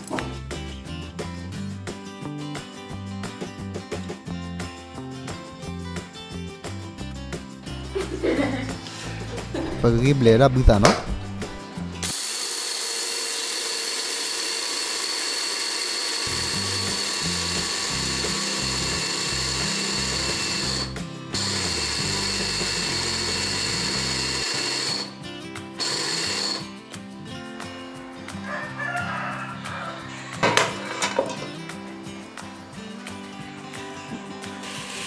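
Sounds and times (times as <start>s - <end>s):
background music: 0.0s - 12.2s, 16.3s - 35.0s
electric grinder whining: 9.6s - 26.8s, 34.4s - 35.0s.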